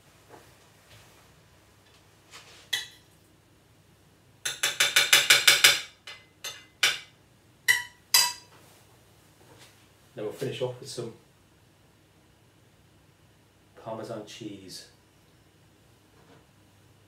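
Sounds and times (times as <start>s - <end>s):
cutlery clinking on china plate: 7.7s - 8.5s.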